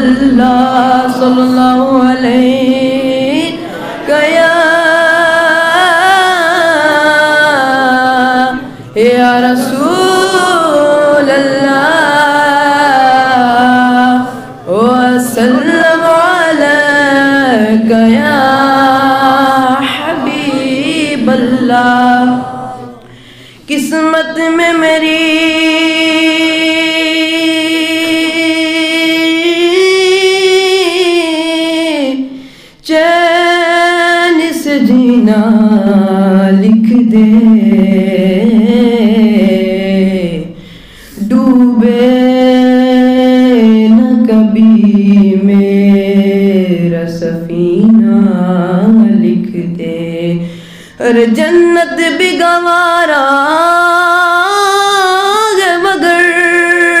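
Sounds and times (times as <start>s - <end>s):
boy singing unaccompanied: 0.0s - 23.1s, 23.7s - 40.5s, 41.2s - 57.0s
boy breathing: 23.0s - 23.7s, 32.3s - 32.8s, 40.5s - 41.2s, 50.4s - 51.0s.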